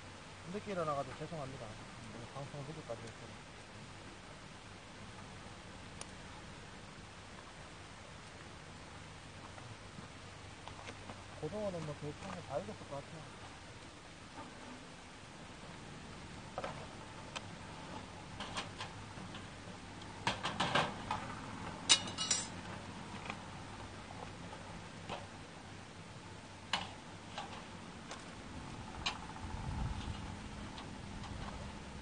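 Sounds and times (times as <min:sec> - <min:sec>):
wire basket metallic clatter: 0:21.9 - 0:22.6.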